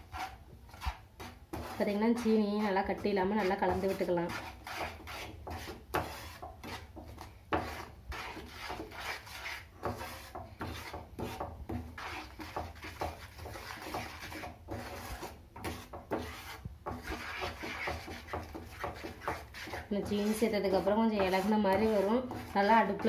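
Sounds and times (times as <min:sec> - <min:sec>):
spatula scraping frying pan: 0:00.0 - 0:23.0.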